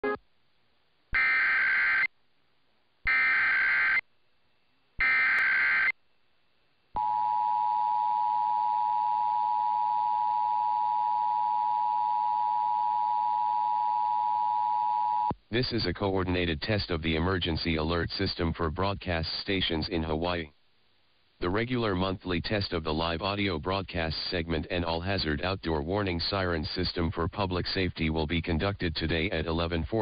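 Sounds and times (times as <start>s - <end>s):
data tone bursts: 5.0s - 5.9s.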